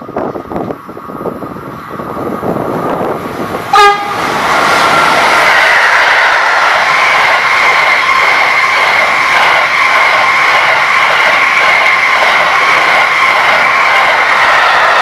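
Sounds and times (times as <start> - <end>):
freight train wheels clattering: 0.0 - 15.0
high-pitched train squeal: 3.7 - 15.0.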